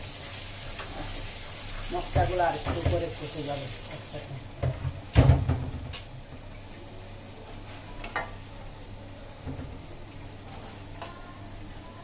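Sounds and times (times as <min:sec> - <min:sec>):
loud thump on pot: 0:04.6 - 0:05.9.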